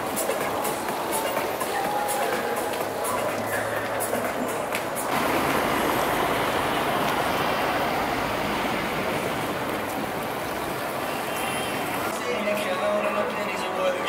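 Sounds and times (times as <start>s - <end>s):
passing vehicle rushing: 2.5s - 12.1s.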